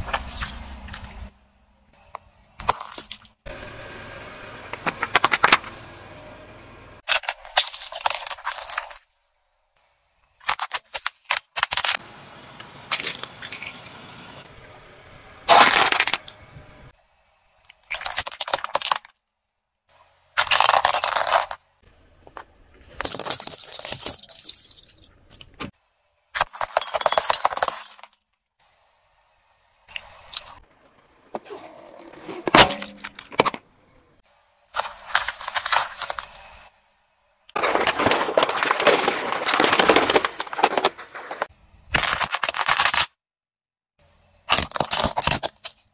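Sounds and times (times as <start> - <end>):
tyre crushing objects: 37.6 - 42.6.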